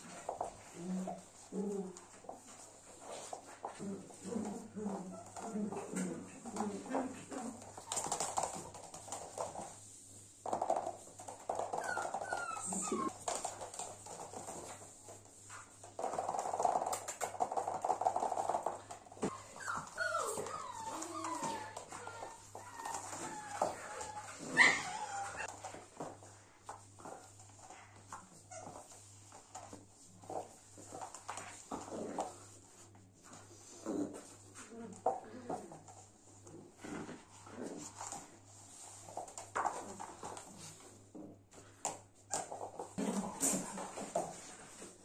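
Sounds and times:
puppies whining and yipping: 11.6 - 13.2, 19.3 - 25.6
puppy yelp: 11.7 - 13.2, 19.3 - 25.5.

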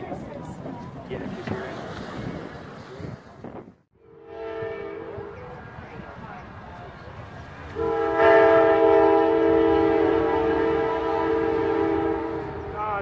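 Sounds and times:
train air horn chord: 4.1 - 5.4, 7.8 - 12.7.

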